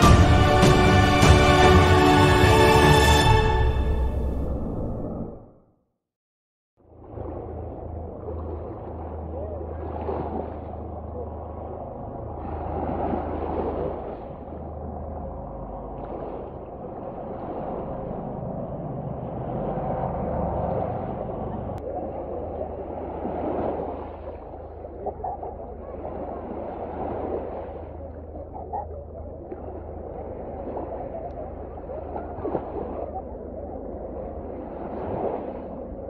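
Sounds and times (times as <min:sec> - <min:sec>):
helicopter drone: 0:17.7 - 0:21.8.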